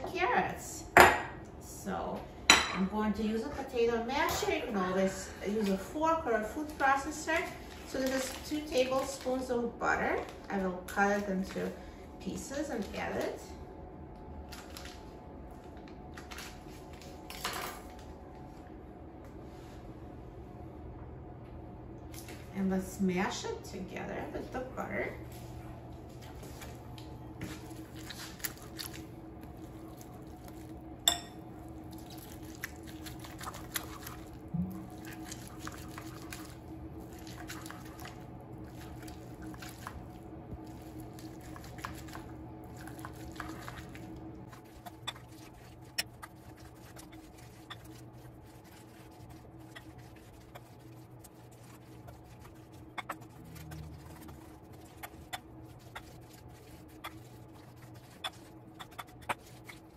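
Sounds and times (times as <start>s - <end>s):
wet squishing of mashed carrots: 5.6s - 11.6s, 26.1s - 59.9s.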